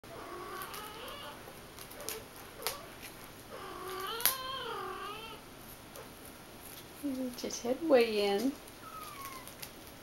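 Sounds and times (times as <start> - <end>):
cat meowing: 3.5 - 5.4, 8.8 - 9.7.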